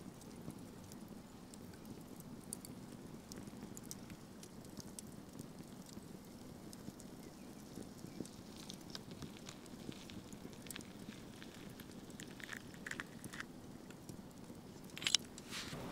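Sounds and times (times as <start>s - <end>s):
low background noise: 0.0s - 15.9s
eggshell clicks and cracks: 6.7s - 15.4s.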